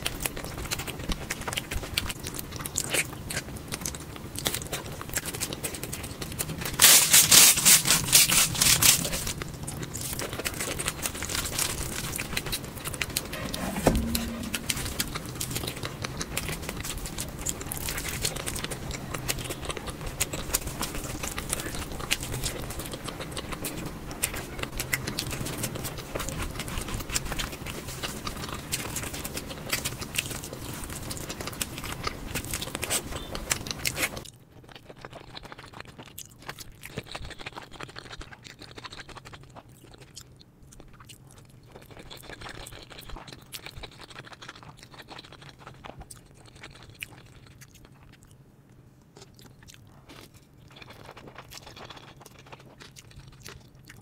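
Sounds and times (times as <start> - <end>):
chewing and mouth clicks: 0.0 - 6.9, 7.8 - 54.0
low thump: 13.3 - 15.2.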